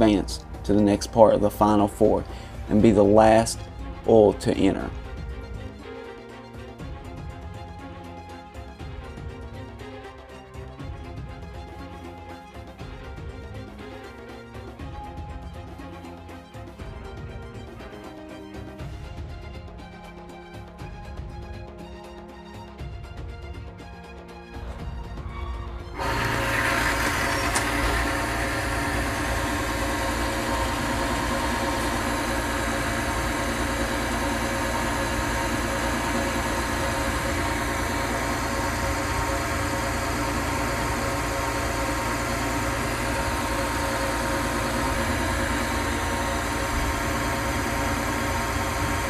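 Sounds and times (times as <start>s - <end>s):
electric motor humming: 26.0s - 49.0s
wheel rubbing in oil: 26.0s - 49.0s.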